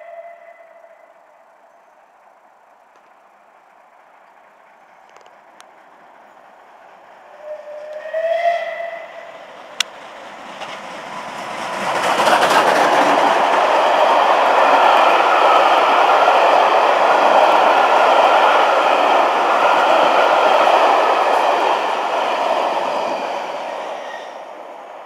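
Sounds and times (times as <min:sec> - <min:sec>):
steam locomotive chime whistle: 0:00.0 - 0:01.2, 0:07.3 - 0:09.4
train rumbling past: 0:00.0 - 0:25.0.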